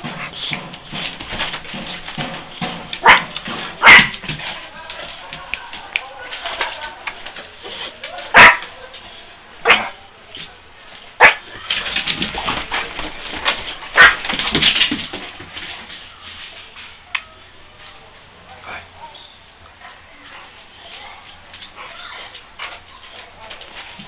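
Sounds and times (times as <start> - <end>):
dogs barking in play: 1.7 - 4.6, 8.2 - 9.0, 9.6 - 10.0, 11.2 - 14.4.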